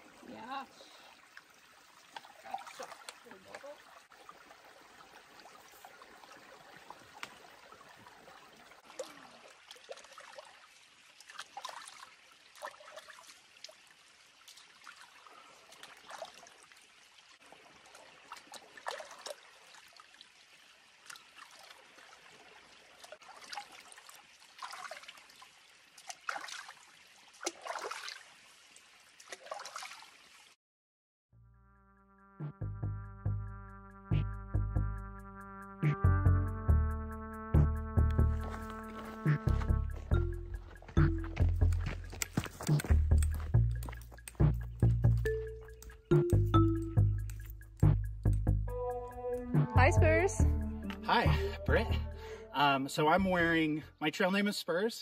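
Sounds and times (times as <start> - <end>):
creek flowing over rocks: 0.0 - 30.6, 38.3 - 44.5
hands splashing water: 2.1 - 3.7, 17.8 - 20.1, 22.9 - 28.4, 29.2 - 30.2, 38.1 - 46.5.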